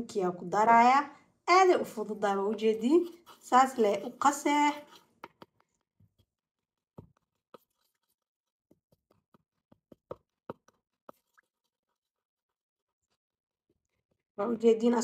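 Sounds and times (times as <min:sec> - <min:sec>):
wooden spoon tapping in bowl: 0:03.9 - 0:05.8.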